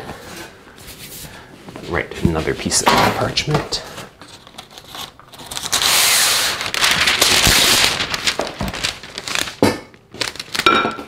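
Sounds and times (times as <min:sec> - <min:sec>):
stiff paper crackling rustle: 0:04.3 - 0:10.8.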